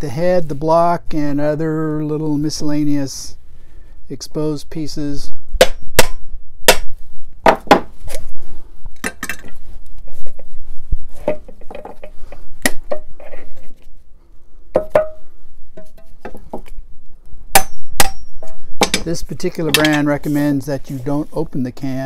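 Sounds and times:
metallic ringing: 17.6 - 19.1.

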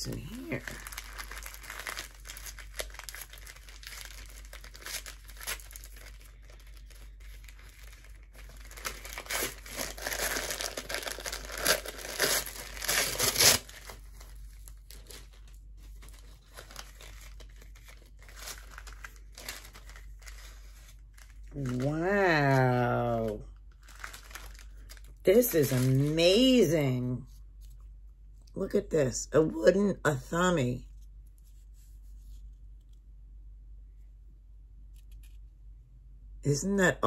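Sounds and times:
paper tearing and crumpling: 0.4 - 26.2.

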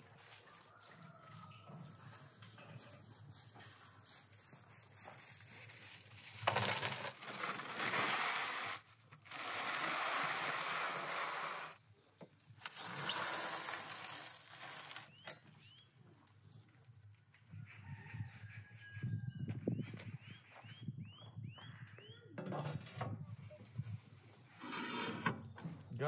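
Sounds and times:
foil rustling: 2.2 - 11.8, 12.7 - 15.3
metal tray scraping on stone: 24.6 - 25.4.

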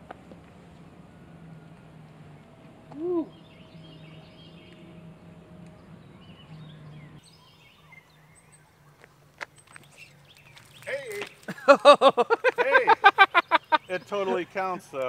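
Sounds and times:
birds singing faintly: 0.8 - 15.0
loud low rising and falling call: 1.2 - 8.8.

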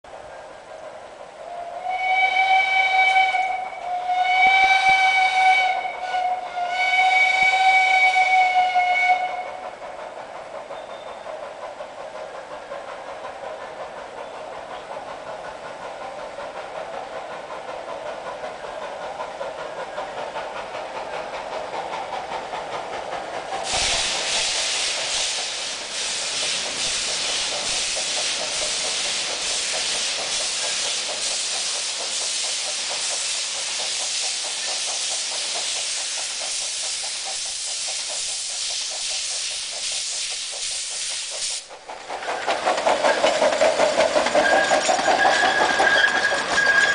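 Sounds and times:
rhythmic steam hiss: 0.1 - 46.9
steam locomotive approaching: 0.1 - 46.9
steam whistle blasts: 1.5 - 9.6.

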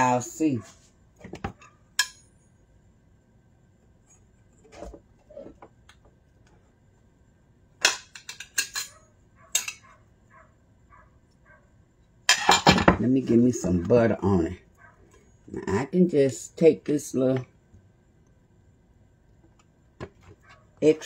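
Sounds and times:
utensils and plate clinking: 7.8 - 9.9, 12.3 - 13.0.

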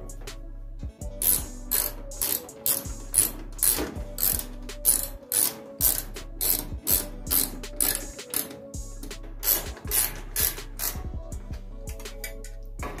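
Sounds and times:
ratchet wrench clicking: 1.2 - 11.1.

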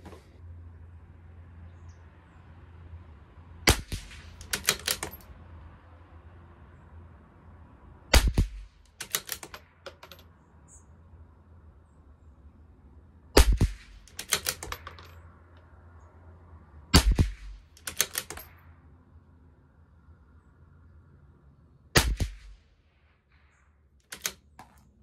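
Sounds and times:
rifle shots: 3.7 - 5.2, 8.1 - 10.2, 13.4 - 15.2, 16.9 - 18.5, 22.0 - 22.6
rifle bolt clicking: 4.3 - 5.2, 8.2 - 10.2, 13.8 - 15.1, 17.0 - 18.5, 24.1 - 24.8.

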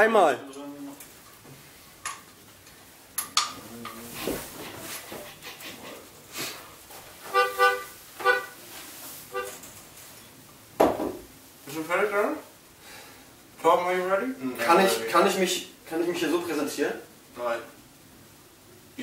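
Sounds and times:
melodica notes: 7.3 - 8.6, 9.3 - 9.6.

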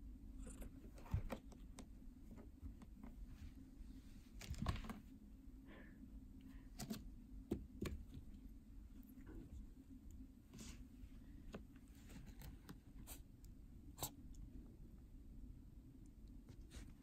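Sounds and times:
cat paws tapping and scratching: 0.4 - 3.3.

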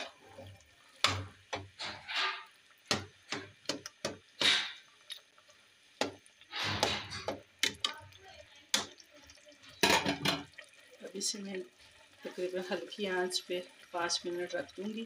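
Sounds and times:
spoon scraping pot: 0.0 - 5.0, 6.1 - 8.0.

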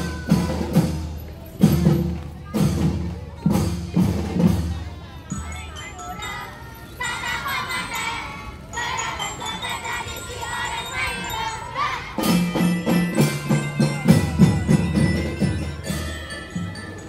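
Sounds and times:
children shouting: 0.0 - 1.0, 5.3 - 17.0
marching drum band: 0.0 - 5.0, 12.0 - 17.0
crowd voices: 0.0 - 17.0
bell-like chiming: 5.2 - 17.0.

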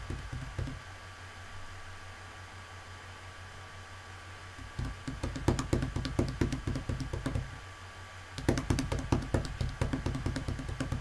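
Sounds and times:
rapid light taps: 0.0 - 0.8, 4.6 - 7.6, 8.4 - 11.0.

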